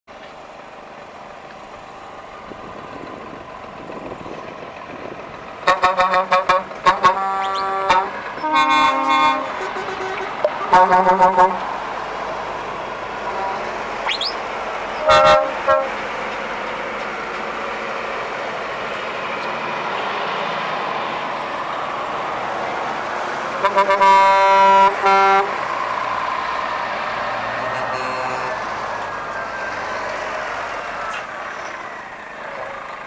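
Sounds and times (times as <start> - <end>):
truck diesel engines running: 0.1 - 33.0
truck air horn toots: 5.6 - 11.8, 13.2 - 16.2, 23.6 - 25.6, 27.5 - 28.8.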